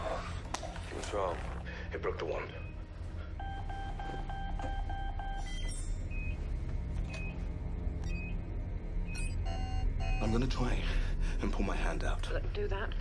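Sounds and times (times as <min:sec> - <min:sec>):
electronic alarm beeping: 0:02.6 - 0:10.4.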